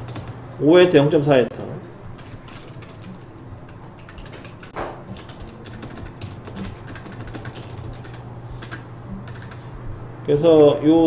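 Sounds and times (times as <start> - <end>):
low hum: 1.8 - 10.3
keyboard typing clicks: 2.2 - 9.6.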